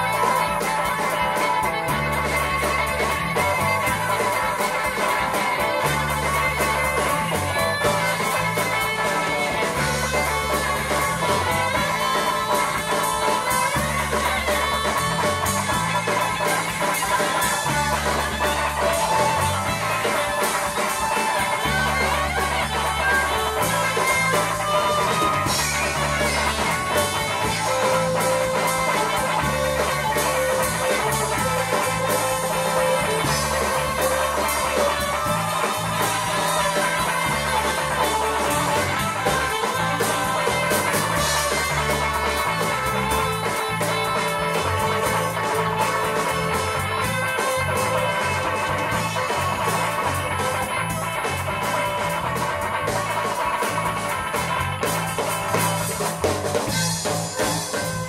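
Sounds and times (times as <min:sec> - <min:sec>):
electric guitar: 0:00.0 - 0:58.0
repeating bass line: 0:00.0 - 0:58.0.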